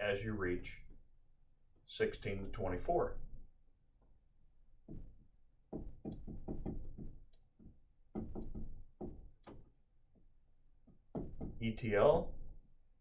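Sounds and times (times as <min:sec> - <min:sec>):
marker writing on whiteboard: 0:04.8 - 0:09.8.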